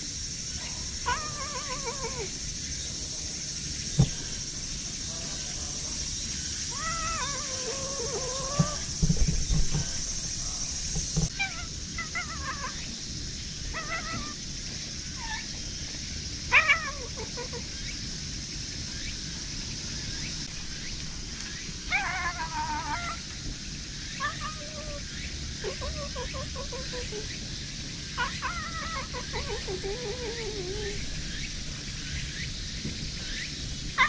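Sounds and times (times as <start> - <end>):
cat meowing: 1.0 - 2.3, 6.7 - 8.9, 11.3 - 12.8, 13.7 - 14.4, 16.5 - 17.6, 21.9 - 23.2, 24.2 - 25.0, 28.2 - 31.0.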